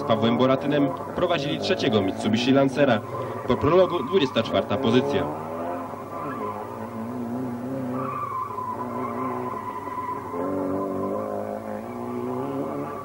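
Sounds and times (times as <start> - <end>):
rally car engine revving: 0.0 - 13.0
tyres squealing: 3.0 - 13.0.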